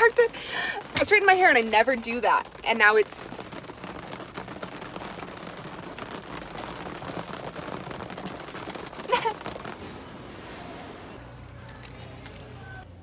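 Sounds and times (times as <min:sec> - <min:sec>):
hard rain on car roof: 0:00.0 - 0:11.2.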